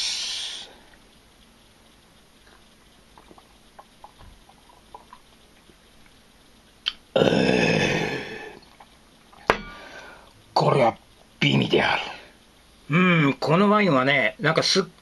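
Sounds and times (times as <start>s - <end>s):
faint swallowing clicks: 2.3s - 6.2s, 6.8s - 10.4s.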